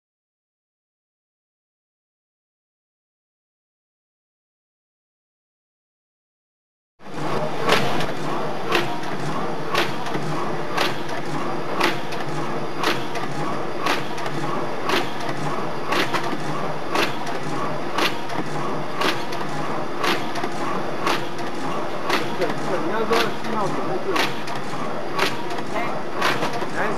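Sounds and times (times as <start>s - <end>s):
machine clattering: 7.1s - 26.9s
sharp machine knock: 7.2s - 26.9s.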